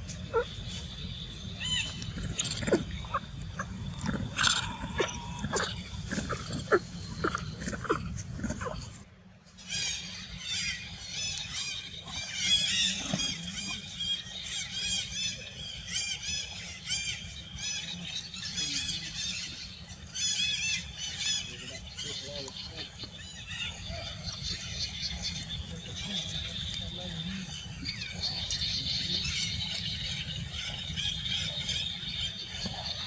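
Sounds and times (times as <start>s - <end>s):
monkeys squealing: 0.3s - 0.6s, 1.6s - 8.8s.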